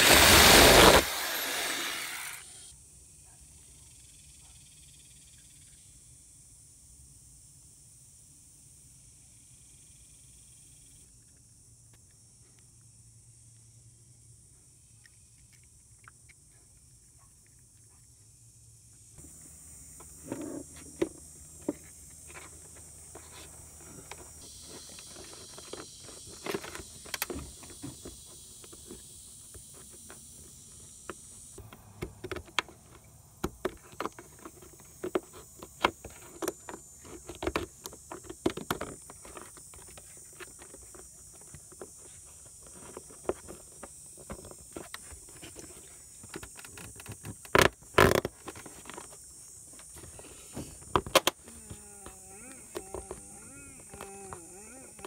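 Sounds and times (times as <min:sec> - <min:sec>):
blade scraping plastic: 0:00.0 - 0:02.6.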